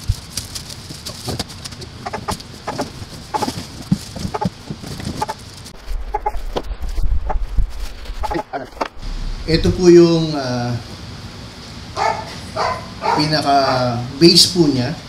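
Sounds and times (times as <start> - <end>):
plastic packaging crinkling: 0.0 - 5.8
short clucking calls: 2.0 - 3.5
low rumble: 5.7 - 10.9.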